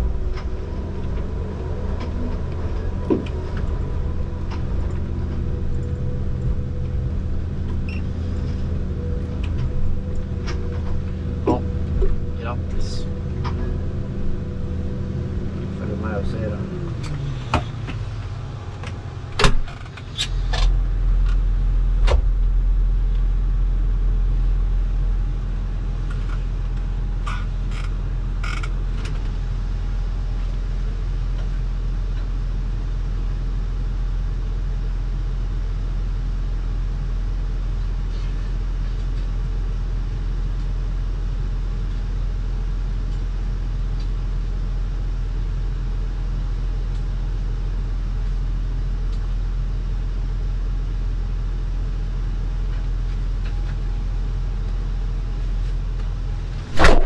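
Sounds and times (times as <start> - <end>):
diesel engine idling: 0.0 - 31.3.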